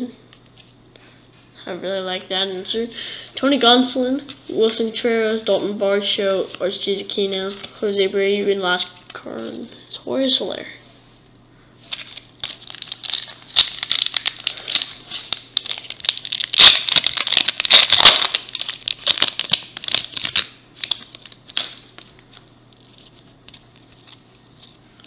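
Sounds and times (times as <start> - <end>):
foil wrapper crinkling and tearing: 11.9 - 25.0.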